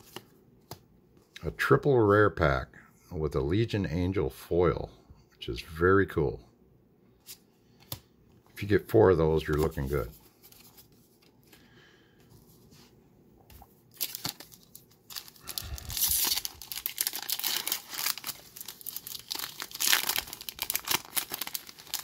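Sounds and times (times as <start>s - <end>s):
foil wrapper crinkling: 13.9s - 22.0s.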